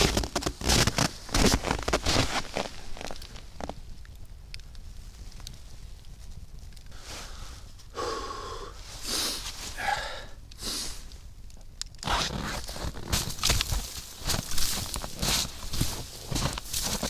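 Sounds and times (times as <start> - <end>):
boots crunching frozen snow: 0.0 - 3.7, 12.1 - 17.0
person breathing: 6.9 - 11.1.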